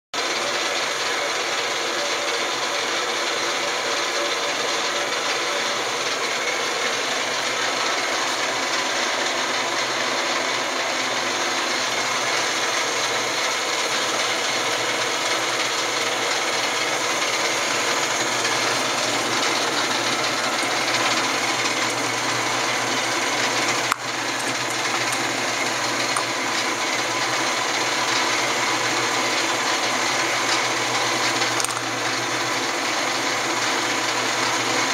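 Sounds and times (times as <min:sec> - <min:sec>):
lathe whirring: 0:00.2 - 0:34.9.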